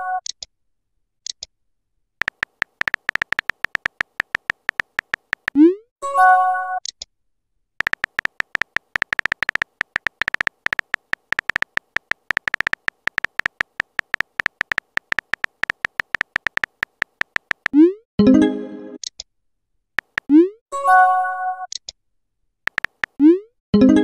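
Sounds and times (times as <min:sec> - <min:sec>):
keyboard tap clicks: 0:02.2 - 0:05.6, 0:07.8 - 0:17.8, 0:20.0 - 0:20.3, 0:22.7 - 0:23.2.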